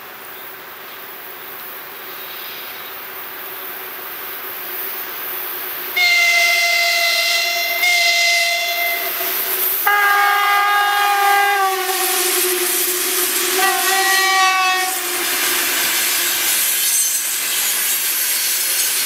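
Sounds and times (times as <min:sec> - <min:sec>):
train rumbling on rails: 0:00.0 - 0:19.0
locomotive horn blasts: 0:06.0 - 0:17.2.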